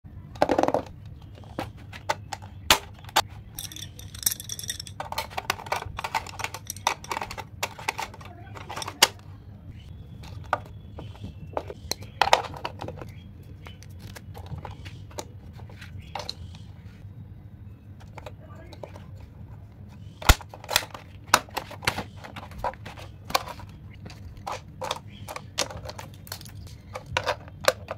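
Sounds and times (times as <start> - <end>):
low steady hum: 0.1 - 27.9
plastic clicks and rattles: 0.4 - 9.2, 10.2 - 15.3, 20.2 - 27.9.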